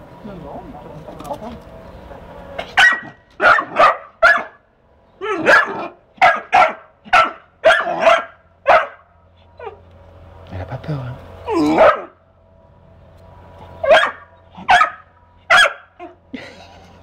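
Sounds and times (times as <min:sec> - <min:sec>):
dog barking: 0:02.7 - 0:04.6, 0:05.2 - 0:09.8, 0:11.6 - 0:12.2, 0:13.8 - 0:16.2.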